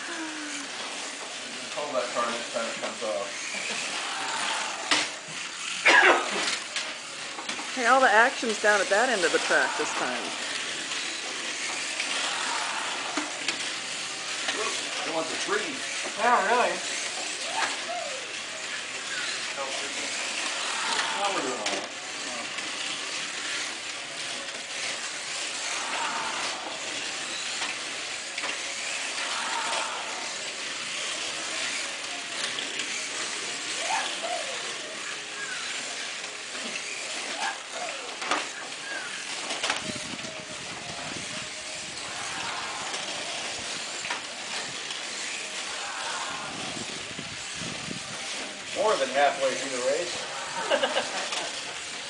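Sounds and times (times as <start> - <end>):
slot car motors whirring: 0.0 - 52.0.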